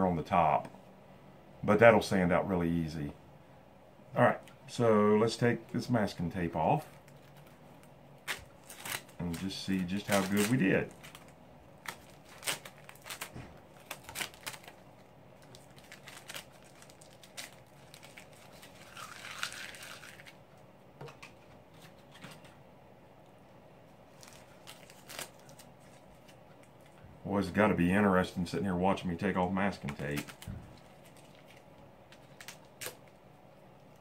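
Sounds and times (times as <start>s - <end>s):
masking tape crackling: 6.8s - 20.4s, 24.1s - 27.0s, 29.3s - 33.2s
tape rustling: 6.8s - 20.4s, 24.1s - 27.0s, 29.4s - 33.2s.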